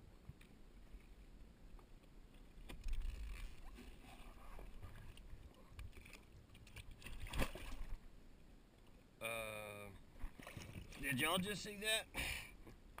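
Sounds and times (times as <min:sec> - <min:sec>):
water splashing beside a boat: 0:02.6 - 0:08.1, 0:10.1 - 0:11.6.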